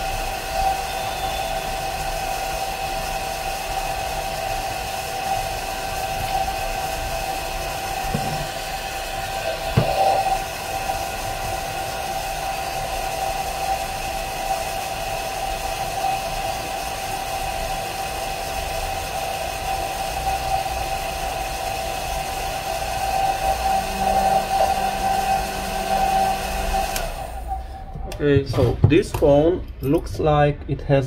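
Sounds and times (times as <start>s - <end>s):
hair dryer running: 0.0s - 27.6s
low hum: 21.2s - 28.4s.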